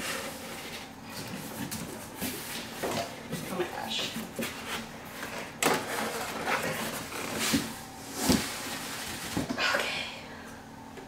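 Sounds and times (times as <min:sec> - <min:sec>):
cardboard box rustling and scraping: 0:04.3 - 0:09.5.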